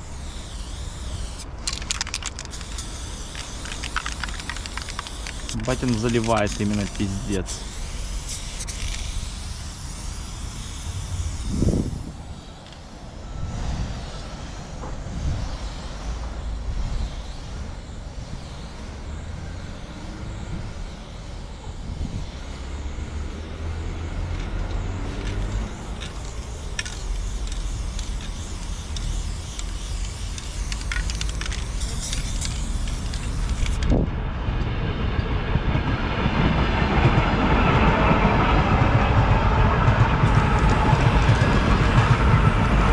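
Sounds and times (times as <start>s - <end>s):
spray-paint can hissing: 0.0s - 13.0s, 21.9s - 34.0s
steady low rumble: 24.3s - 42.9s.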